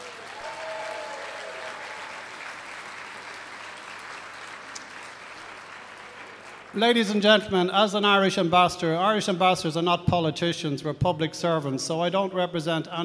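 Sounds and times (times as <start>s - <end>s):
audience applause: 0.0s - 6.9s.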